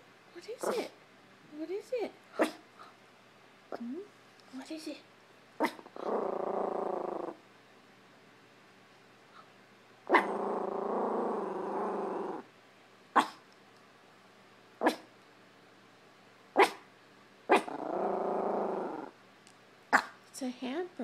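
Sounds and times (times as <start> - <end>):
small dog barking: 2.4 - 2.6, 5.6 - 5.9, 10.1 - 10.4, 13.1 - 13.4, 14.8 - 15.1, 16.6 - 16.9, 17.5 - 17.8, 19.9 - 20.2
small dog growling: 5.6 - 7.4, 10.1 - 12.5, 17.5 - 19.2.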